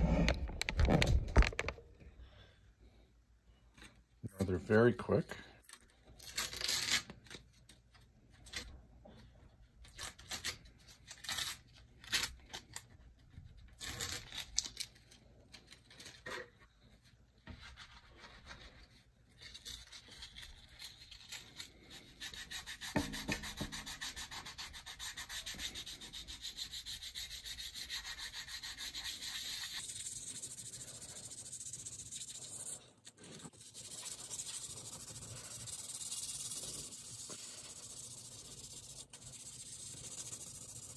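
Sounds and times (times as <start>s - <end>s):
sanding block rubbing wood: 22.0s - 40.9s.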